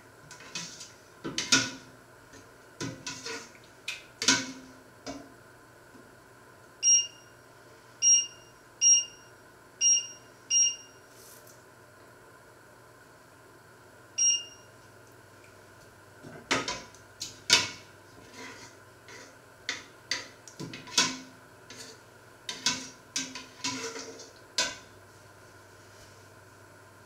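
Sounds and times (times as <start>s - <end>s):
hob touch control beep: 6.8s - 7.3s, 8.0s - 11.0s, 14.2s - 14.7s.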